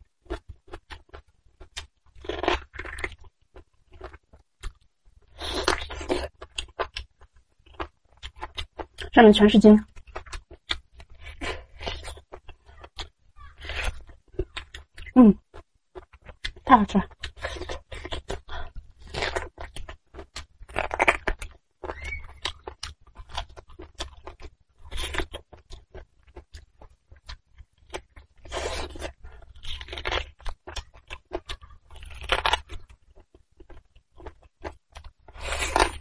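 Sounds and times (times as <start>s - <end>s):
wet chewing and sucking: 9.8s - 36.0s.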